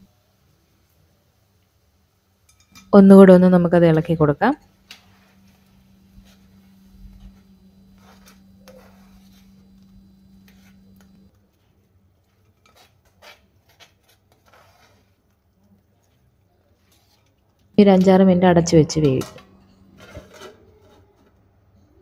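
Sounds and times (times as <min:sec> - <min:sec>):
steady low hum: 0:02.8 - 0:11.4
spoon scraping a pot: 0:04.9 - 0:11.2, 0:12.4 - 0:15.3.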